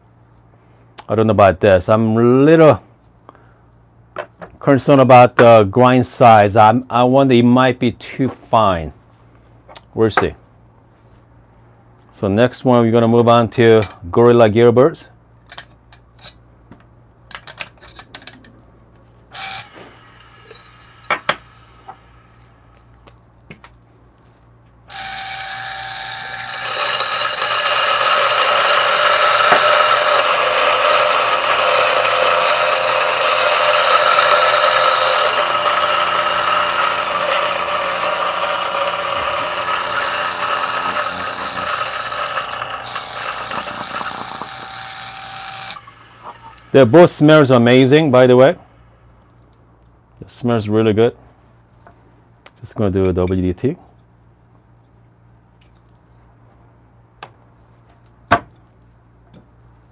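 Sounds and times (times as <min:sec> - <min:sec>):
coffee grinder motor running: 0:19.4 - 0:22.6, 0:24.9 - 0:46.9.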